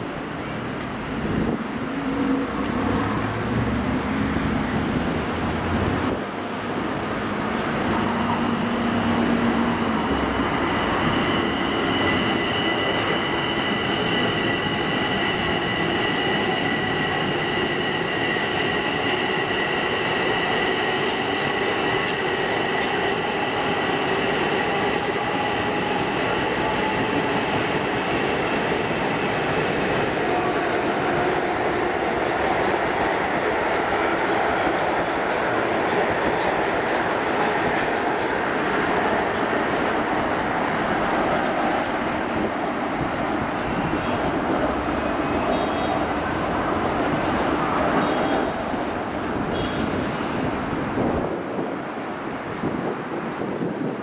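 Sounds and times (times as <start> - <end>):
high steady train whine: 0.0 - 54.0
train wheels rolling on rail: 0.0 - 54.0.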